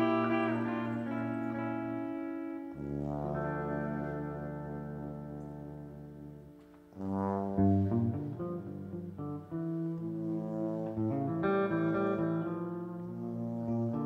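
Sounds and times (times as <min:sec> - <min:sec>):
live band playing: 0:00.0 - 0:04.2
guitar: 0:00.0 - 0:14.0
tuba: 0:00.0 - 0:14.0.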